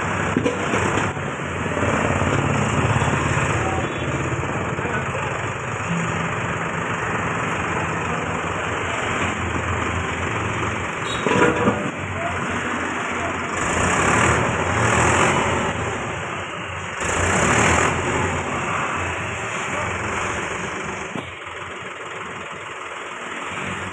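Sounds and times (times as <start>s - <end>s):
loader bucket clatter: 0.0s - 3.7s, 9.0s - 12.2s
tractor diesel engine running: 0.0s - 23.9s.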